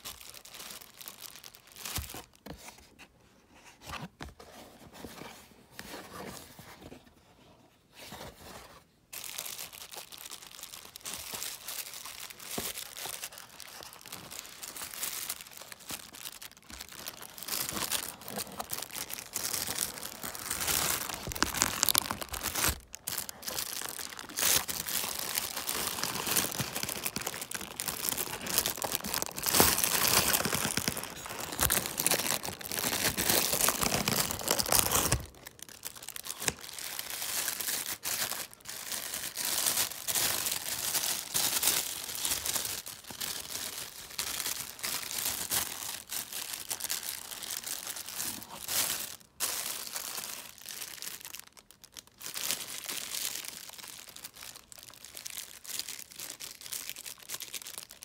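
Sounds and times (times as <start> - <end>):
plastic packaging crinkling: 0.0 - 2.6, 9.1 - 58.0.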